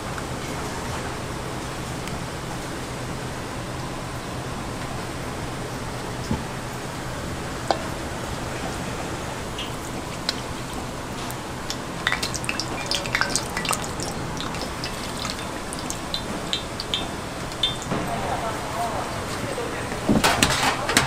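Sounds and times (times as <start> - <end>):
oil hissing on a griddle: 8.4 - 17.9
oil popping and crackling: 9.5 - 17.9.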